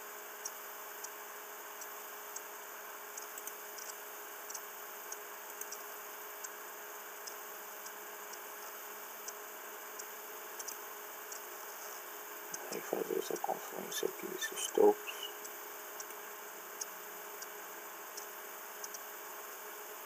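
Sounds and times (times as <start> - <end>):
faint hum: 0.0 - 20.0
background hiss: 9.5 - 20.0.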